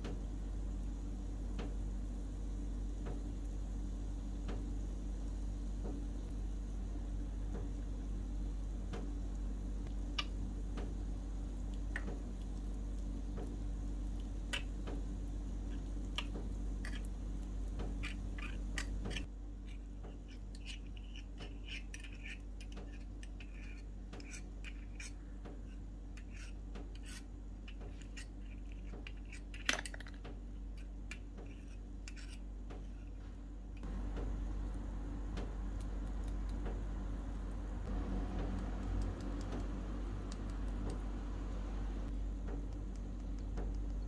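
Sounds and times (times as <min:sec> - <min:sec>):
steady low hum: 0:00.0 - 0:44.0
mortar and pestle grinding: 0:11.6 - 0:29.7, 0:30.6 - 0:33.2
metal spoon scraping bowl: 0:17.9 - 0:25.2.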